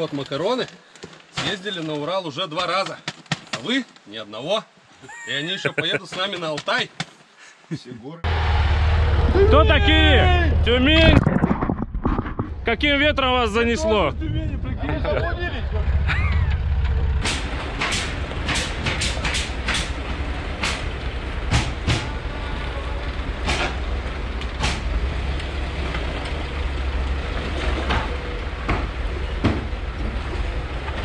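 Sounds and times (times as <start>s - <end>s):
off-road vehicle engine at low revs: 8.3s - 31.0s
sharp knocks and clanks: 16.8s - 22.2s, 23.4s - 23.9s, 24.5s - 25.1s, 27.4s - 30.2s.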